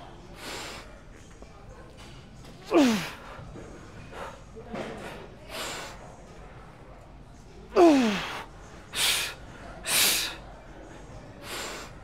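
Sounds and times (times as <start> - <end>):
man breathing heavily: 7.8 - 10.4.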